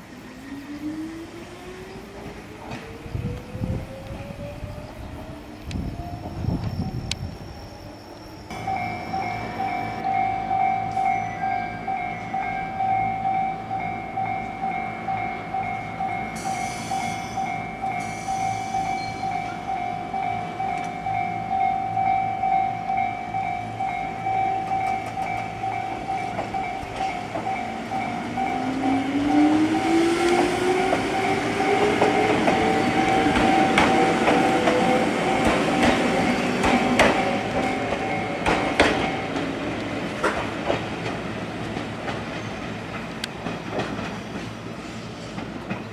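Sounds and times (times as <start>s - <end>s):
level crossing alarm ringing: 7.8s - 39.8s
wheels clacking over rail joints: 24.6s - 45.9s.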